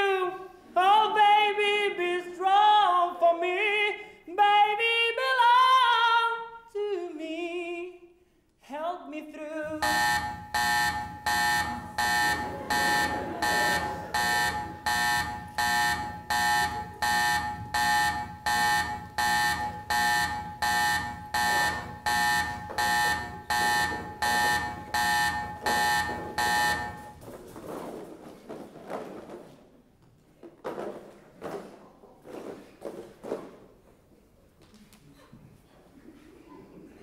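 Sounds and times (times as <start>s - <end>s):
pulsing electronic alarm beep: 9.8s - 27.2s.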